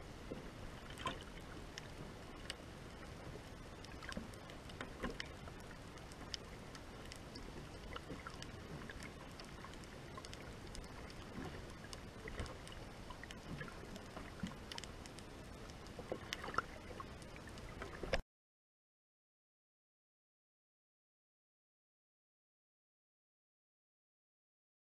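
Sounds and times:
small clicks and pops: 0.8 - 18.2.

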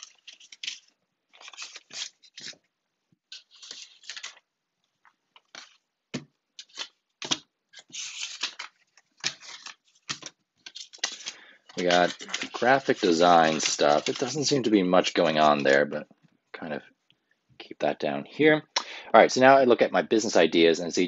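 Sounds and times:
paper notes swishing and scraping: 3.3 - 4.3, 7.7 - 15.8.

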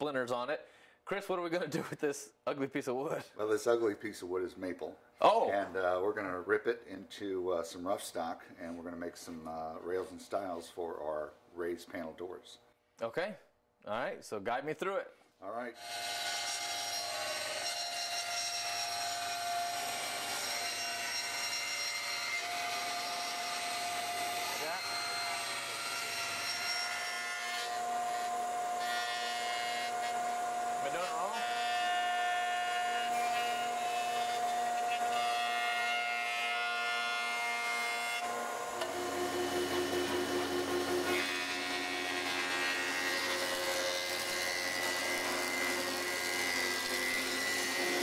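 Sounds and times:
table saw ripping a board: 15.8 - 48.0
jointer whining: 38.2 - 48.0
woodworking machine low tone: 38.2 - 48.0.

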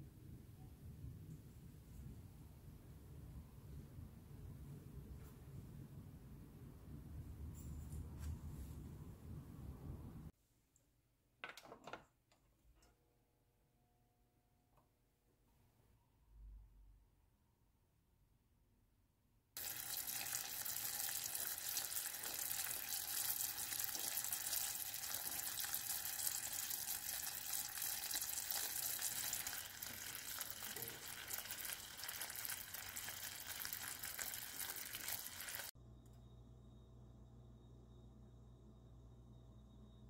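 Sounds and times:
syrup boiling and bubbling: 19.6 - 35.7.

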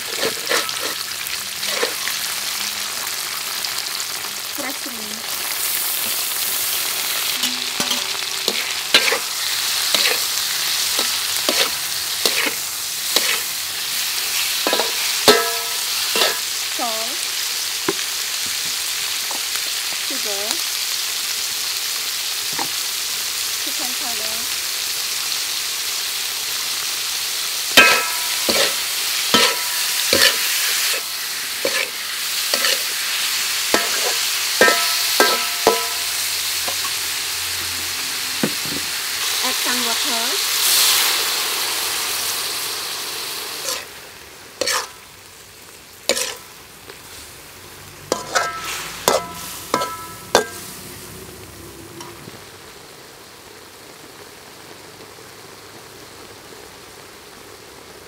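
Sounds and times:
shrimp sizzling in a wok: 0.0 - 58.0
spatula knocking ringing wok: 7.4 - 9.2, 14.6 - 16.5, 27.8 - 31.0, 33.7 - 37.0, 48.1 - 50.7.

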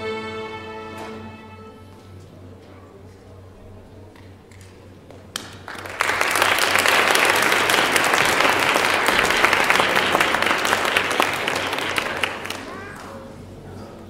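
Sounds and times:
audience applauding: 4.6 - 13.3.

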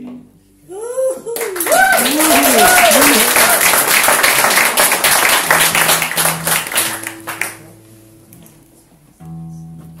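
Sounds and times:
people clapping: 1.4 - 7.7
double bass and acoustic guitar: 5.7 - 10.0.

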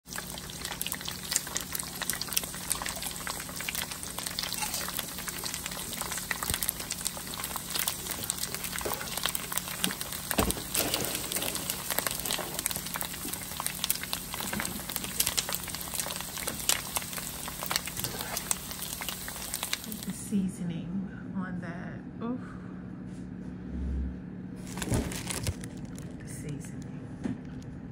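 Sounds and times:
deep-frying crackle and sizzle: 0.0 - 20.2, 24.6 - 26.2.

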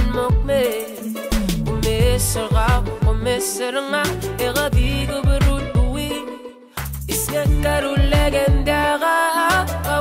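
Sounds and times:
song with sung vocals: 0.0 - 10.0
deep bass drum hits: 1.5 - 3.3.

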